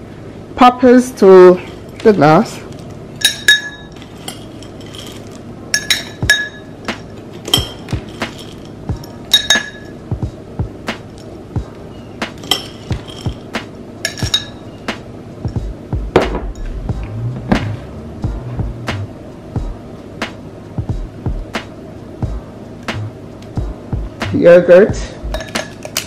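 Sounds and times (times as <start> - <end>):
metal spoon clinking against glass: 3.2 - 6.7, 7.5 - 10.0, 12.4 - 13.4, 14.0 - 14.7, 25.3 - 26.0.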